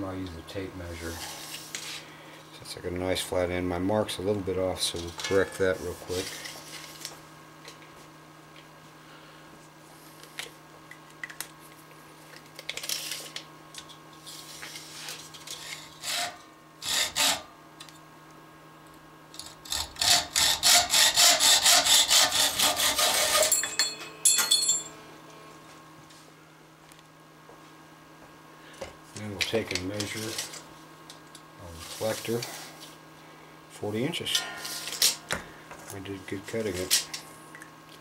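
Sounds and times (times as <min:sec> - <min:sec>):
hacksaw cutting metal: 0:15.7 - 0:17.4, 0:19.4 - 0:24.8
metallic clinks: 0:23.5 - 0:25.0.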